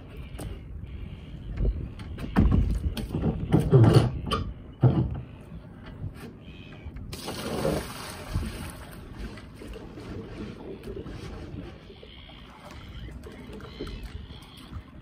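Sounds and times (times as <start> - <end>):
water pouring across a deck: 7.1 - 9.4.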